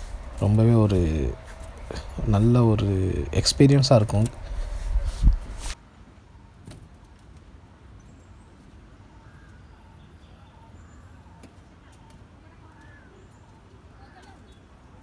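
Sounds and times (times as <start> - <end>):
low outdoor rumble: 0.0 - 6.3
bird calls: 8.0 - 15.0.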